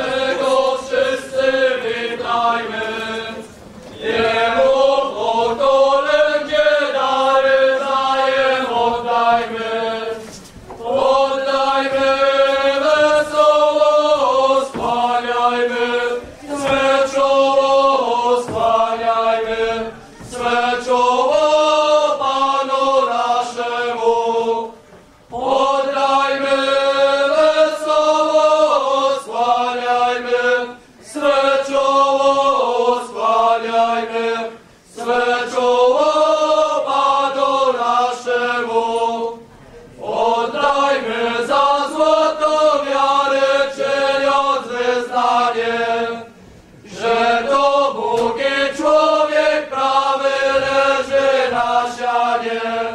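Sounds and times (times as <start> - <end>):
group singing a carol: 0.0 - 52.9.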